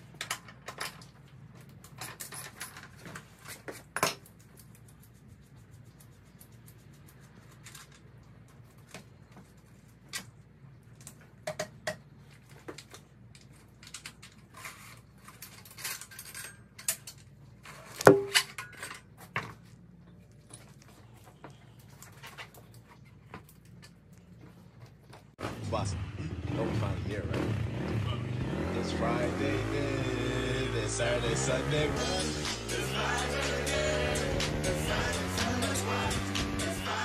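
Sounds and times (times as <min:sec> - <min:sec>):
metal clinks and rattles: 0:00.0 - 0:05.2, 0:12.7 - 0:19.4.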